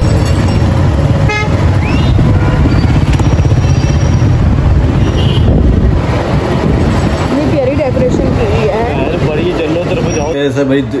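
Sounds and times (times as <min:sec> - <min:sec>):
vehicle road and wind noise: 0:00.0 - 0:11.0.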